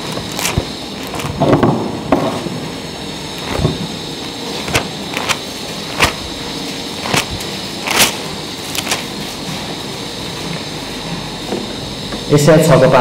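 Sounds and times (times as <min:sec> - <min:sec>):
pages being leafed through: 0:00.0 - 0:02.5, 0:03.1 - 0:09.5
steady hiss: 0:00.0 - 0:13.0.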